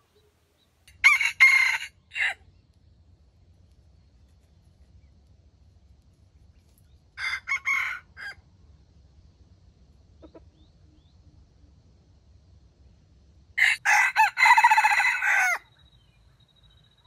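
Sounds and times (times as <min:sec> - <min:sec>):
rooster crowing: 0:00.9 - 0:02.4, 0:07.2 - 0:08.4, 0:13.6 - 0:15.8.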